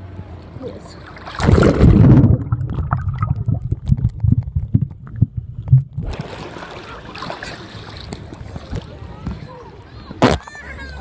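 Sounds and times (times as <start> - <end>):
water sloshing: 0.8 - 9.4
underwater bubbling: 1.1 - 7.2
muffled underwater rumbling thuds: 1.4 - 6.2.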